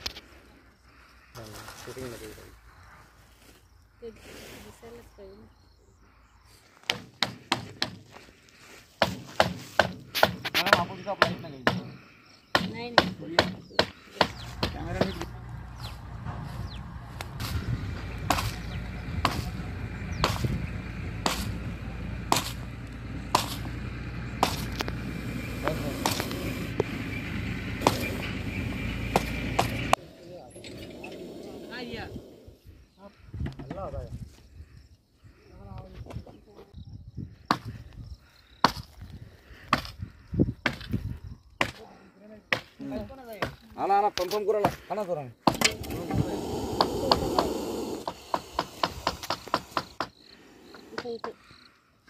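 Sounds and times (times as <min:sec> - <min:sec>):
hard tool chopping strikes: 0:06.9 - 0:08.0, 0:09.0 - 0:15.2, 0:18.2 - 0:18.6, 0:19.2 - 0:19.6, 0:20.2 - 0:20.6, 0:21.2 - 0:21.5, 0:22.3 - 0:22.6, 0:23.3 - 0:23.7, 0:24.4 - 0:24.8, 0:26.0 - 0:26.3, 0:27.8 - 0:28.1, 0:29.1 - 0:29.8, 0:45.5 - 0:45.8, 0:46.8 - 0:50.2.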